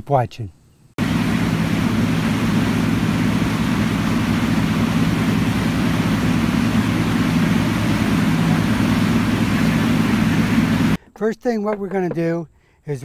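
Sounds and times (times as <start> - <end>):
boat motor droning: 1.0 - 11.0.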